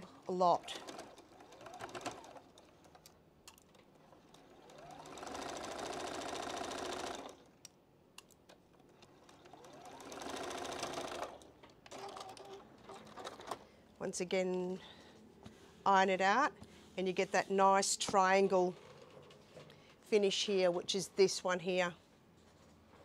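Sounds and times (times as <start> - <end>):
sewing machine stitching: 0.1 - 3.0, 3.7 - 7.5, 8.8 - 13.6.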